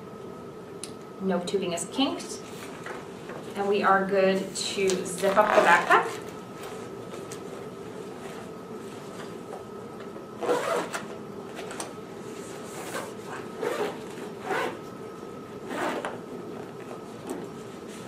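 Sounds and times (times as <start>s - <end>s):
faint steady hum: 0.0s - 18.0s
zipper being pulled shut: 10.4s - 11.0s, 12.8s - 14.8s, 15.6s - 16.2s.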